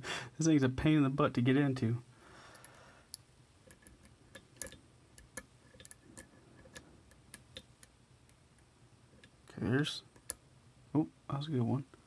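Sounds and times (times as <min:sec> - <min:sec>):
lock pick metallic clicks: 0:02.5 - 0:09.3.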